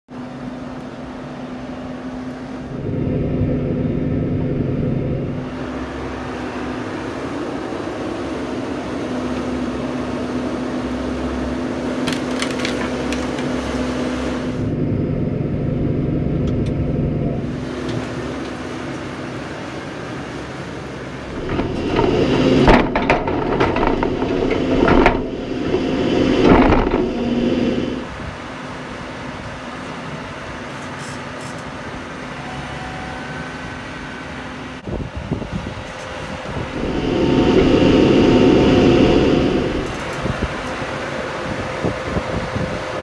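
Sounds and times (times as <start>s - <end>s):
tractor engine running: 21.1s - 28.1s, 36.5s - 40.8s
rough noise and knocks: 21.2s - 28.2s, 36.5s - 40.8s.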